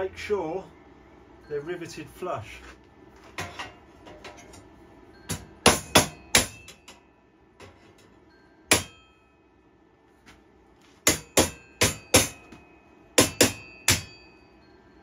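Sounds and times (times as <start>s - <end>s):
hammer striking metal drift: 5.3s - 7.0s, 8.7s - 9.2s, 11.0s - 14.3s.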